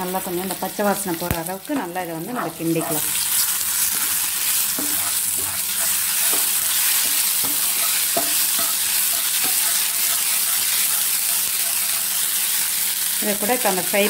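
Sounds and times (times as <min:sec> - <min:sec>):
paste frying in hot oil: 0:00.0 - 0:14.0
spatula scraping a pan: 0:01.7 - 0:13.2.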